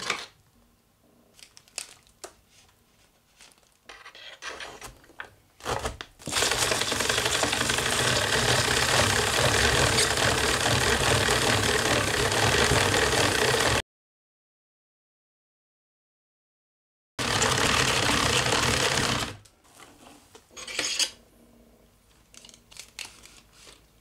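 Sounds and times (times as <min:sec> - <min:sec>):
blades crunching cabbage: 0:05.6 - 0:13.7.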